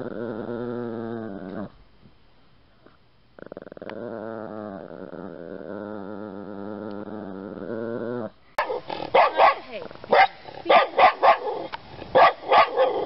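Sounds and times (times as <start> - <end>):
small dog growling: 0.0 - 1.8, 3.4 - 9.2
small dog barking: 8.6 - 13.0.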